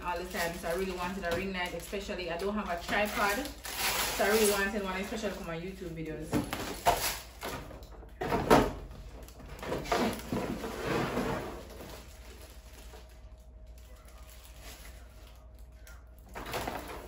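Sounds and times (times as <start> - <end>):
knocks and rustling of packaging: 6.2 - 13.1, 16.3 - 17.0.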